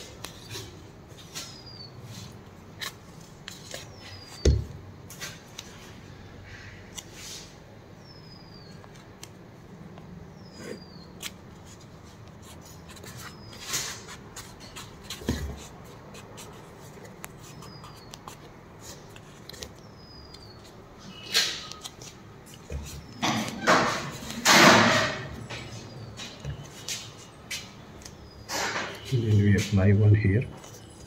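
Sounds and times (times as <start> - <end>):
hands rubbing tape on cast: 10.7 - 20.8.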